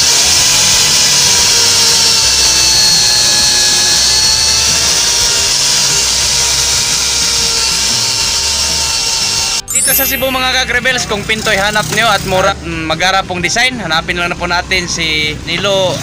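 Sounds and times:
angle grinder sanding wood: 0.0s - 9.7s.

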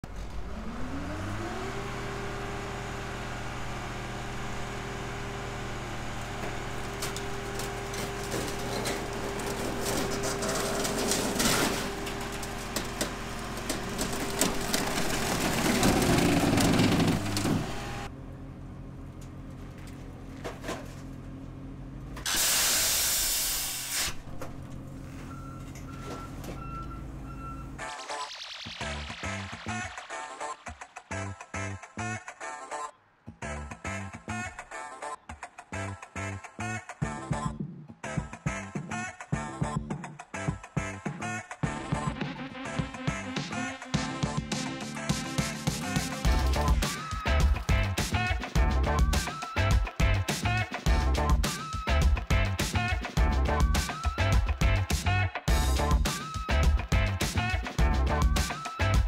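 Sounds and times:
hydraulic crusher engine drone: 0.0s - 22.5s, 46.2s - 48.0s
metal cracking and crunching: 6.5s - 17.9s
loud hiss: 22.3s - 24.2s.

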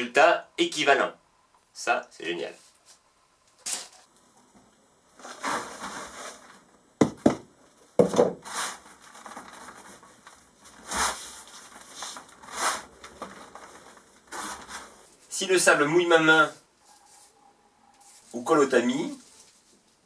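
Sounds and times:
sharp knocks: 7.0s - 8.4s
hands scraping damp sand on metal: 10.8s - 13.0s.

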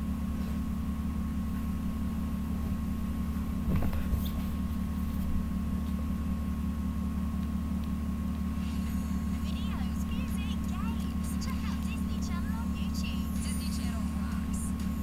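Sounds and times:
electrical hum and buzz: 0.0s - 15.0s.

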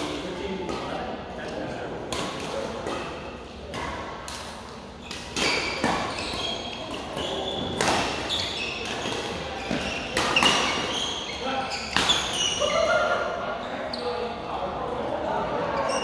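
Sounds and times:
rackets hitting shuttlecock: 0.1s - 11.0s, 11.8s - 12.4s
shoes squeaking on court: 4.9s - 12.7s, 13.7s - 14.4s, 15.8s - 16.0s.

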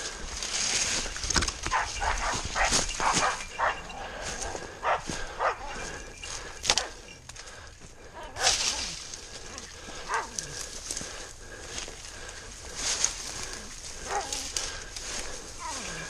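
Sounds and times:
footsteps on dry leaves: 0.0s - 16.0s
dog barking: 1.7s - 3.9s, 4.8s - 5.9s, 10.1s - 10.4s, 14.0s - 14.5s
brush scraping: 12.7s - 16.0s.

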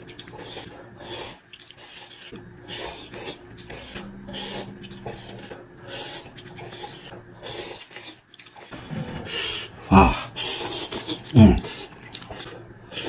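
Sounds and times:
person slurping noodles: 0.3s - 13.0s.

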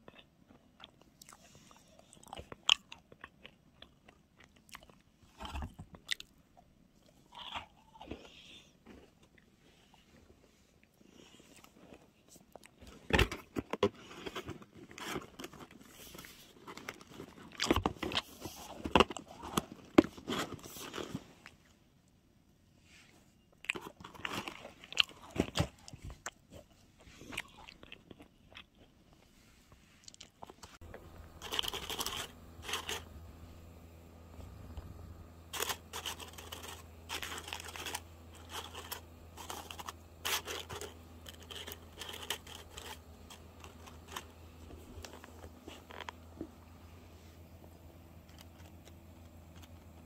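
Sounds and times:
faint low hum: 0.0s - 50.0s
paper and plastic crinkling: 12.8s - 21.6s, 23.8s - 26.6s, 30.4s - 33.1s, 35.5s - 46.5s.

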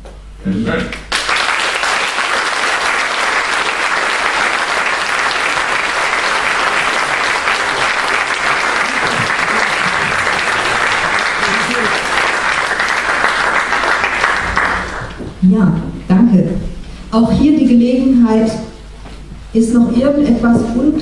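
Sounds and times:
audience applauding: 1.0s - 15.2s.

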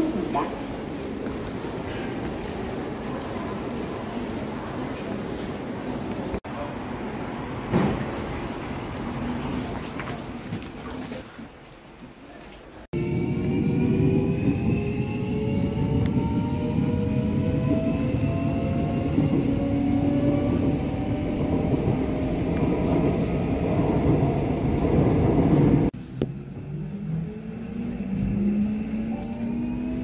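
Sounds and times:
wheels rumbling on rails: 13.0s - 30.0s.

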